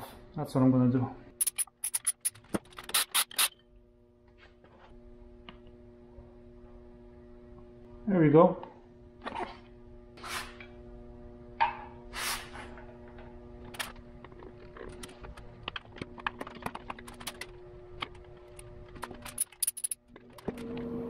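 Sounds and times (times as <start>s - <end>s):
short scrape: 12.1s - 12.7s.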